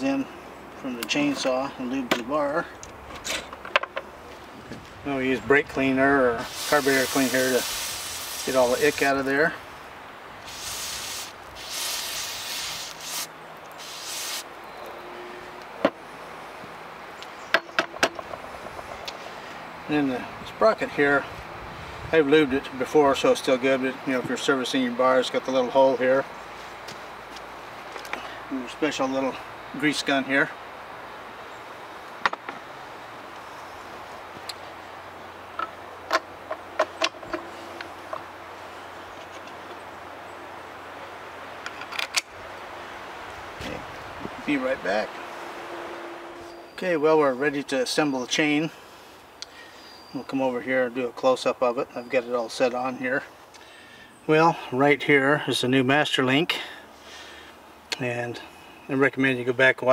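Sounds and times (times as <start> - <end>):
aerosol can spraying: 6.4 - 9.1, 10.4 - 14.5.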